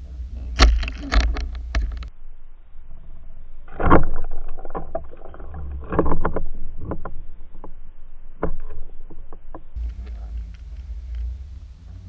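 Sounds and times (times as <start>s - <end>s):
low underwater rumble: 0.0s - 12.0s
muffled underwater knocks and clicks: 0.4s - 2.1s, 3.7s - 7.8s, 8.4s - 11.4s.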